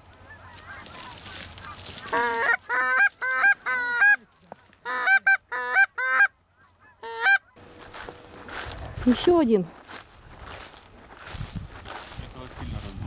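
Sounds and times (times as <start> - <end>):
goose honking: 0.2 - 7.6.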